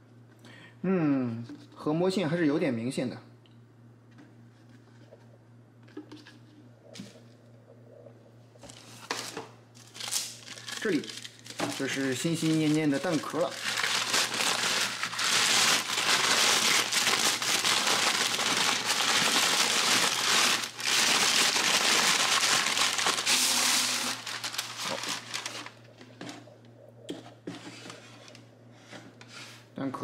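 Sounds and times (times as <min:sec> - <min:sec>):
paper crinkling: 0:08.6 - 0:26.0.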